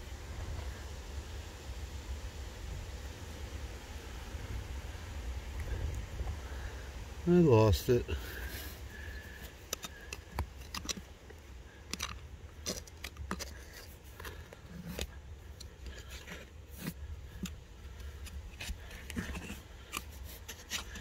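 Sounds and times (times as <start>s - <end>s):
hands scratching through dirt: 7.6s - 21.0s.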